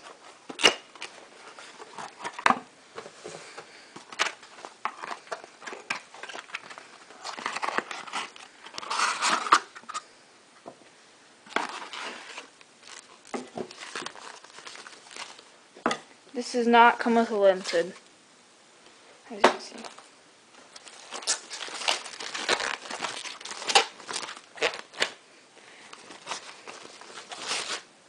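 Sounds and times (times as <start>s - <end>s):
packaging rustling and crinkling: 0.0s - 10.0s, 11.5s - 15.6s, 19.7s - 25.2s, 25.8s - 27.9s.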